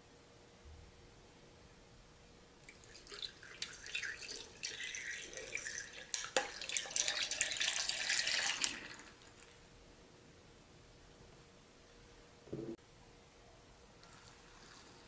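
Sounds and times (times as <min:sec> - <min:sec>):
liquid pouring over ice: 0:02.6 - 0:09.6.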